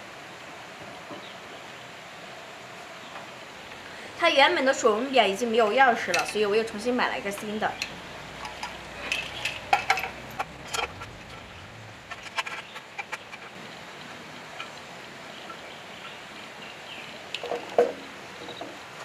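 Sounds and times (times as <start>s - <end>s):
metal panel clicking and rattling: 7.8s - 13.6s.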